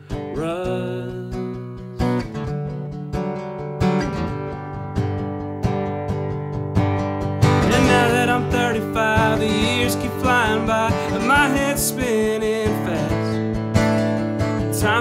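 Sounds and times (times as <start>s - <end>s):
man singing: 0.0s - 2.2s, 7.6s - 13.6s, 14.5s - 15.0s
acoustic guitar: 0.0s - 15.0s.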